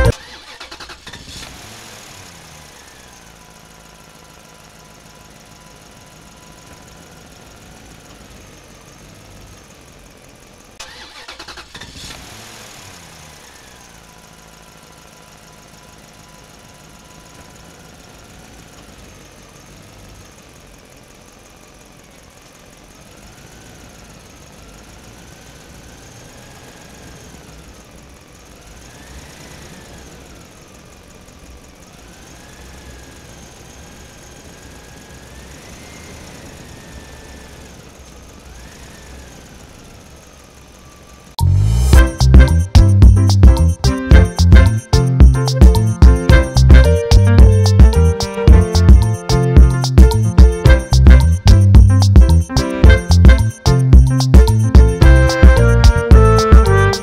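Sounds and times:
engine revving: 0:00.0 - 0:04.0, 0:10.8 - 0:14.6, 0:28.6 - 0:30.6, 0:41.4 - 0:57.0.

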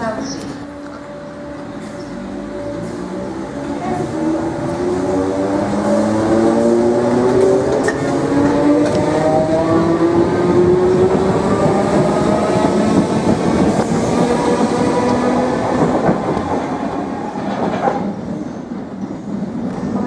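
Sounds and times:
wheel and rail noise: 0:00.0 - 0:20.0
train knocks: 0:01.6 - 0:09.9, 0:10.9 - 0:18.4.

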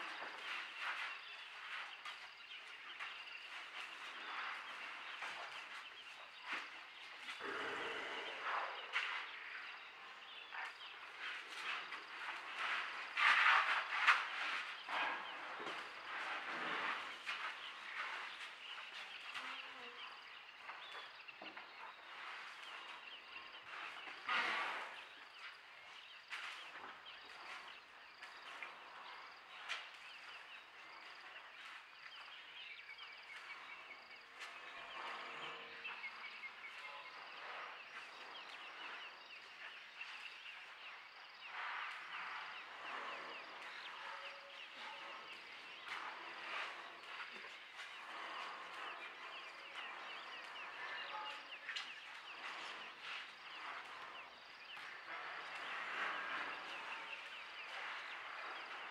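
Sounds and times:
birds and insects chirping: 0:00.0 - 0:58.9
rustling noise: 0:10.6 - 0:19.6.

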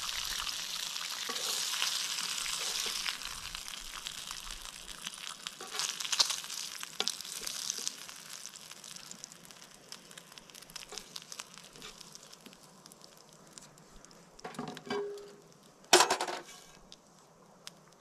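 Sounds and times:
fat crackling in a frying pan: 0:00.0 - 0:18.0
pan scraping on stove: 0:01.2 - 0:03.2, 0:16.0 - 0:16.8.

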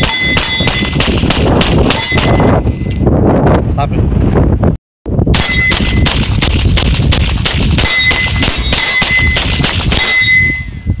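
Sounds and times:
wind buffeting microphone: 0:00.0 - 0:11.0
pistol shots: 0:05.4 - 0:10.2.

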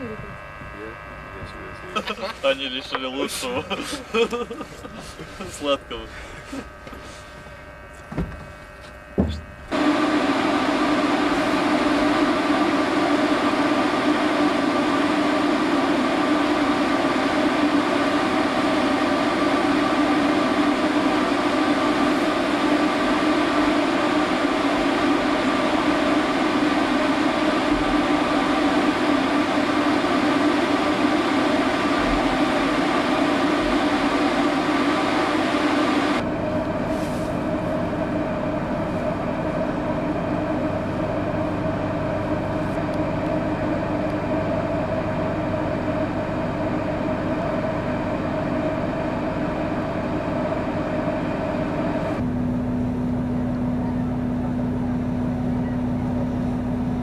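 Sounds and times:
machinery drone with low hum: 0:00.0 - 0:57.0
soft knocks: 0:08.1 - 0:08.5, 0:09.1 - 0:09.5.

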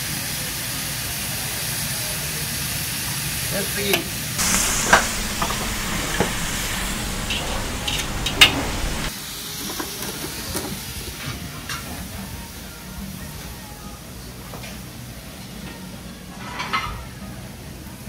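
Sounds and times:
kitchen noise: 0:04.4 - 0:09.1
food sizzling in a wok: 0:04.4 - 0:09.4.

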